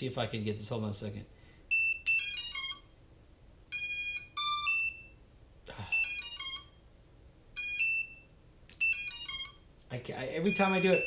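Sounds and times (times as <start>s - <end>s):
drone buzzer beeping: 1.7s - 2.9s, 3.7s - 5.1s, 5.9s - 6.8s, 7.6s - 9.7s, 10.4s - 11.0s.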